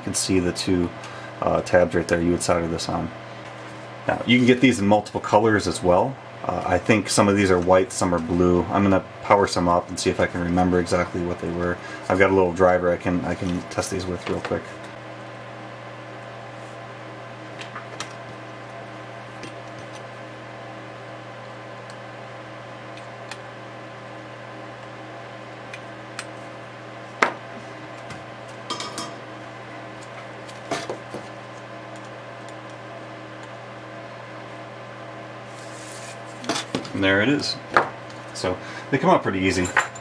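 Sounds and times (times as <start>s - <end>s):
steady electrical hum: 0.0s - 40.0s.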